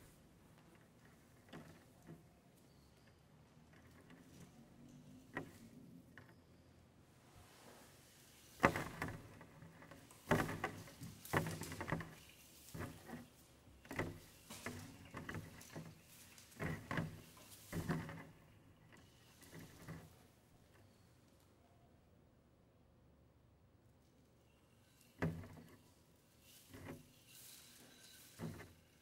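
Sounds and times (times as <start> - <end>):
leaves and ribbons rustling: 7.3 - 20.4, 24.8 - 29.0.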